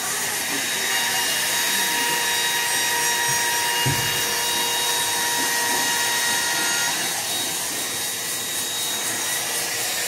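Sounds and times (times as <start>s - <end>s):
power tool whining: 0.0s - 10.0s.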